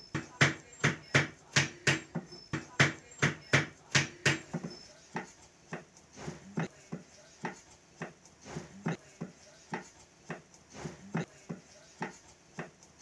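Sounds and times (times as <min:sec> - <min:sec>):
cleaver chopping on wooden block: 0:00.2 - 0:05.9.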